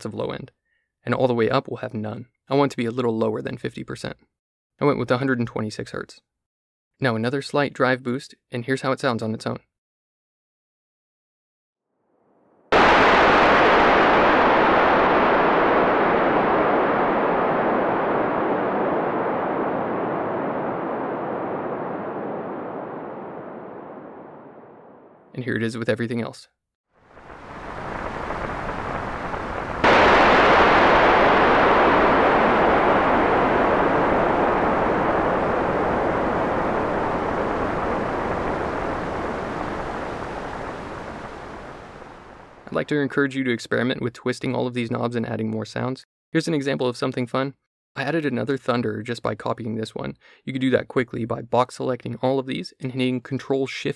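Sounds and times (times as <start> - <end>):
synthesized thunder rumble: 12.7 - 25.2, 27.0 - 42.9.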